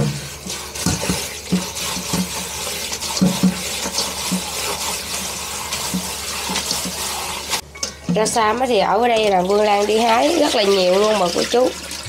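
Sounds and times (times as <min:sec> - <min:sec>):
tap running into steel bowl: 0:00.0 - 0:05.0, 0:05.7 - 0:07.0.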